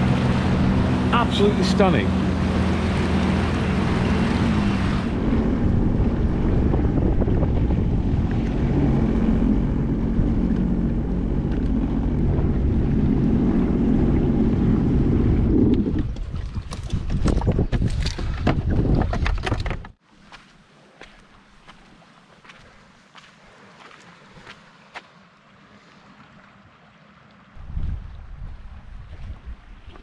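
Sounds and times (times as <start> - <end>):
water wash: 0.0 - 18.2
watercraft engine running: 0.0 - 20.0, 20.7 - 30.0
wind on microphone: 2.3 - 19.9, 27.6 - 30.0.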